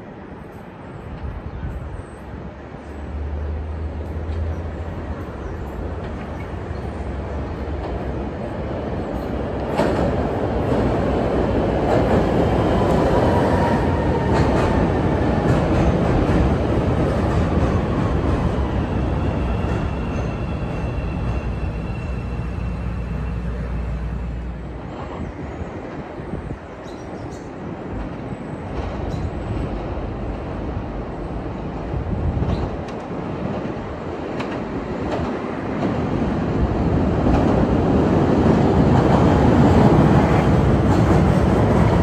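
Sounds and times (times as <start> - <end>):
train wheel and rail noise: 0.0 - 42.0
faint train whine: 11.4 - 31.8.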